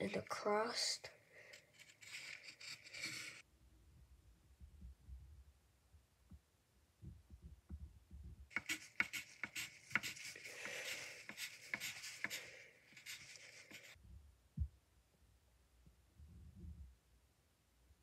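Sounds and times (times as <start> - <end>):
pencil scratching on paper: 1.5 - 3.4, 8.5 - 14.0.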